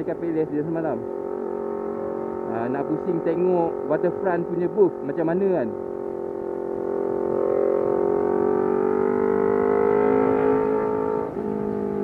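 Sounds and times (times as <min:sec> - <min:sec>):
motorcycle engine accelerating: 0:00.0 - 0:12.0.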